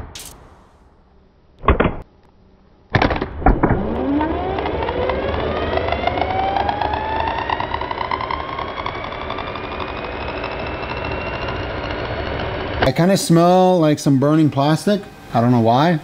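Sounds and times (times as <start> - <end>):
starter motor whining: 3.7 - 16.0.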